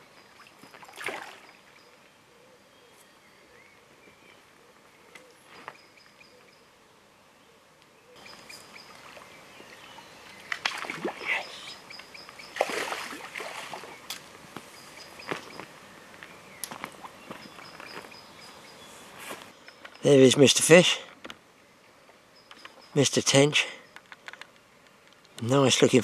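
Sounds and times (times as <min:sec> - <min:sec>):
faint bird chirps: 0:00.0 - 0:12.8, 0:14.7 - 0:20.4, 0:21.6 - 0:24.9
fish splashing in landing net: 0:00.8 - 0:01.5, 0:10.6 - 0:11.2, 0:12.6 - 0:14.0.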